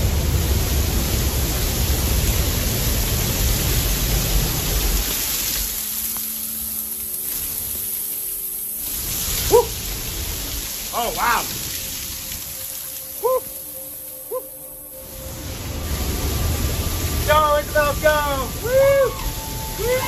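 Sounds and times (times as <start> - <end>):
waterfall roaring: 0.0 - 20.0
person crying out: 9.5 - 9.8, 13.2 - 13.6, 18.6 - 20.0.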